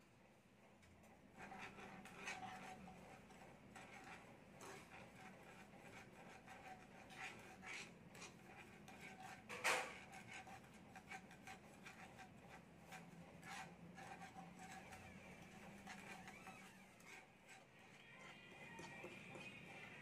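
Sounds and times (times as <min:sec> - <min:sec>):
metal stick scraping frying pan: 0:01.4 - 0:20.0.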